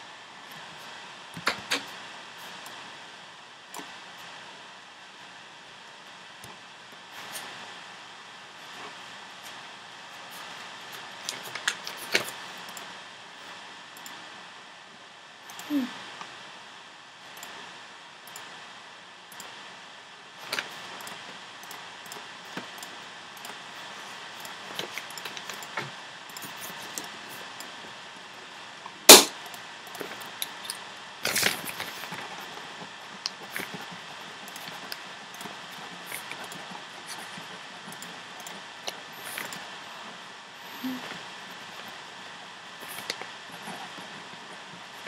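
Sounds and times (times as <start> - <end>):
steady background hiss: 0.0 - 45.0
sharp loud knock: 29.1 - 29.3.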